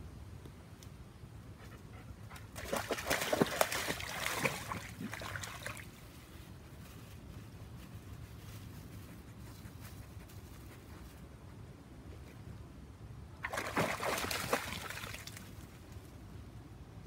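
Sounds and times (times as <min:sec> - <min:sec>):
dog splashing through water: 0:02.5 - 0:06.0, 0:13.4 - 0:15.6.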